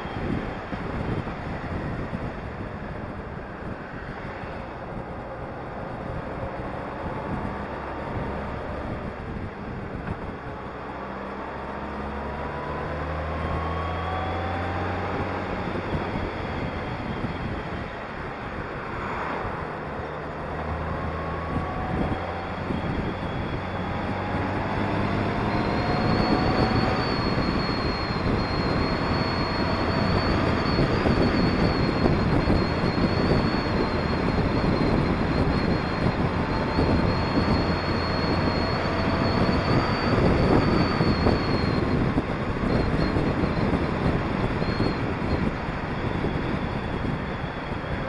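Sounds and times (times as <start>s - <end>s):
road noise: 0.0s - 48.0s
wind rushing over microphone: 0.0s - 48.0s.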